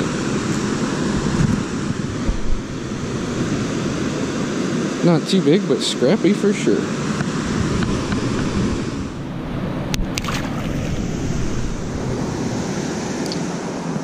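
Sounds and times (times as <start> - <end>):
wind buffeting microphone: 0.0 - 5.0, 7.0 - 14.0
water rushing through spillway: 10.1 - 12.3.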